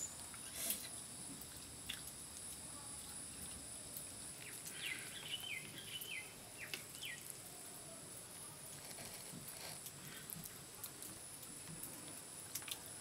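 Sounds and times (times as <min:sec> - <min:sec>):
high insect hum: 0:00.0 - 0:13.0
bird chirping: 0:04.4 - 0:07.3.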